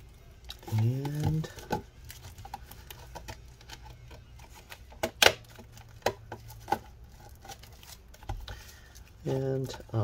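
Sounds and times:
plastic casing clicking: 0.5 - 6.8.

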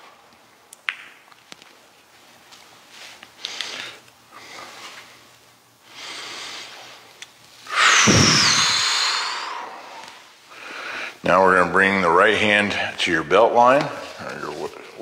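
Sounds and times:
loud whistling exhale: 7.7 - 10.2
man breathing softly: 8.6 - 11.2.

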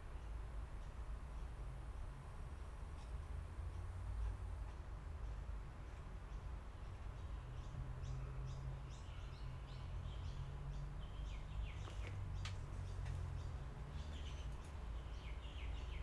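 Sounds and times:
small birds chirping: 0.1 - 16.0.

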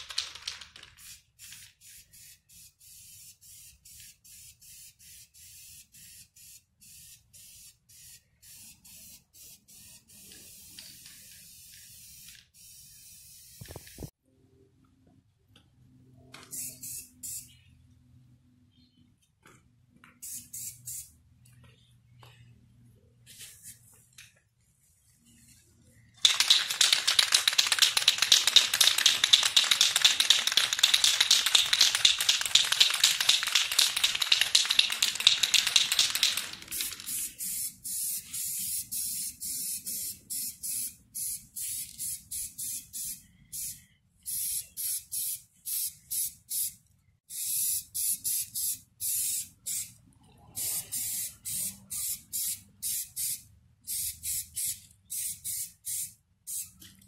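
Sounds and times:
aerosol spray can hissing: 26.2 - 49.9, 50.6 - 56.8.

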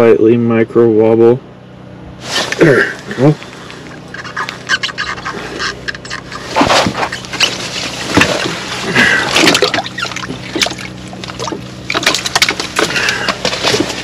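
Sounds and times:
scraping and rustling handling: 2.2 - 14.0
water splashing in ice hole: 7.4 - 13.8.

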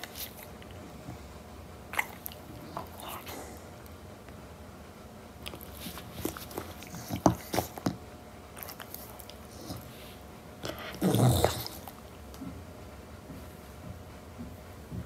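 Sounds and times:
puppy mouth smacks and clicks: 2.0 - 3.3, 8.6 - 9.9
puppy low grumble: 10.6 - 12.0.

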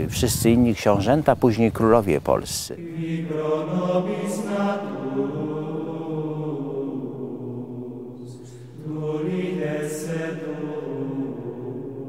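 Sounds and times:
chanted singing: 2.8 - 12.0.

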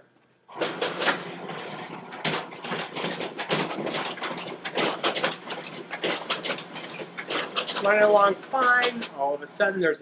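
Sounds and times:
folder inserter machine clattering: 0.5 - 9.8.

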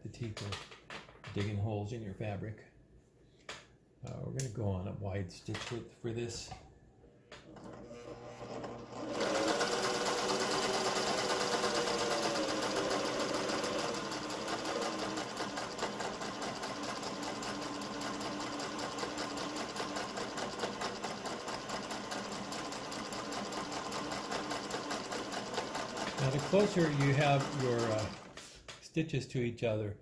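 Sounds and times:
sewing machine motor whirring: 7.5 - 28.6
sewing machine needle ticking: 9.1 - 28.4.

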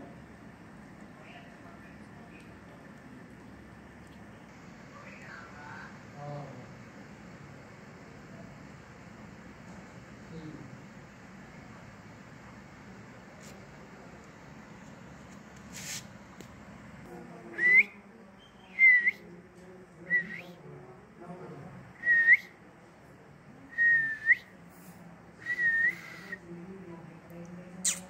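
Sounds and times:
person whistling: 25.4 - 26.4.

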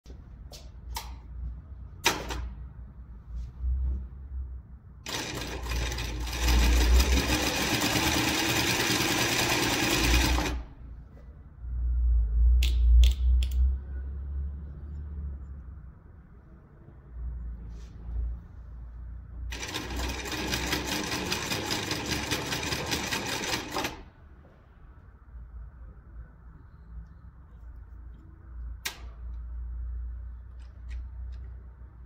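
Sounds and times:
sewing machine stitching: 5.0 - 10.7, 19.5 - 24.1.

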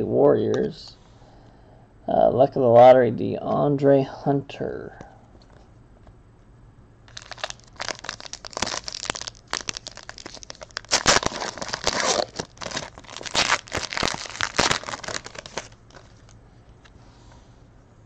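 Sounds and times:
foil wrapper crinkling and tearing: 7.1 - 16.4.

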